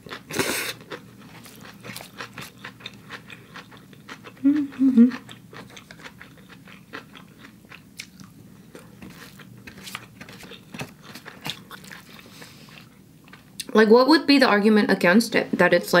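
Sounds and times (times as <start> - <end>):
close chewing with small crunches: 0.0 - 13.7.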